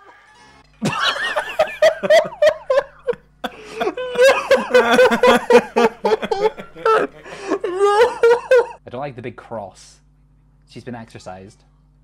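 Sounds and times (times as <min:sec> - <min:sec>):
laughter in rapid pulses: 0:00.8 - 0:08.8.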